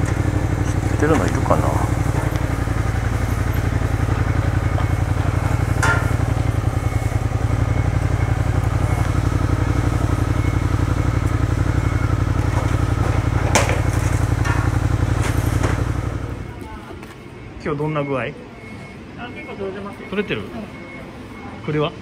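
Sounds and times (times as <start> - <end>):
motorcycle engine idling: 0.0 - 16.9.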